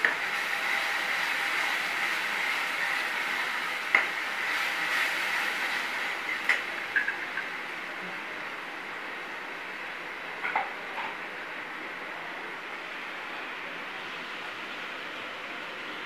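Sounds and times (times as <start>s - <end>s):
spice paste sizzling in oil: 0.0s - 7.5s.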